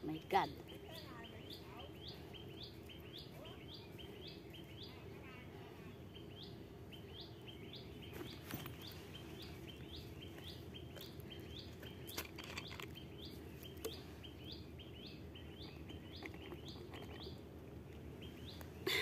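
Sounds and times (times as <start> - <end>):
bird chirping: 0.0 - 19.0
low background noise: 0.0 - 19.0.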